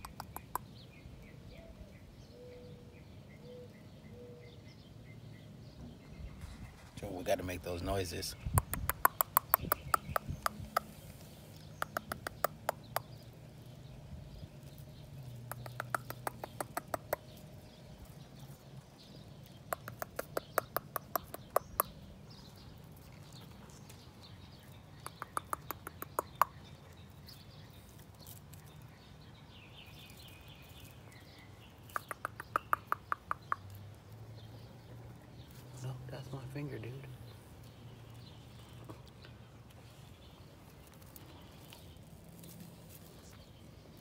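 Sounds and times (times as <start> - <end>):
mouth clicks: 0.0 - 0.8, 8.4 - 13.3, 15.4 - 17.4, 19.5 - 22.0, 24.9 - 26.7, 31.8 - 33.8.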